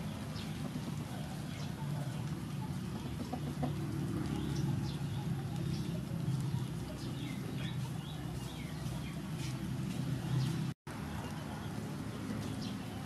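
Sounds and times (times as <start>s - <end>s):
small birds chirping: 0.0s - 13.0s
rooster clucking: 0.5s - 9.6s.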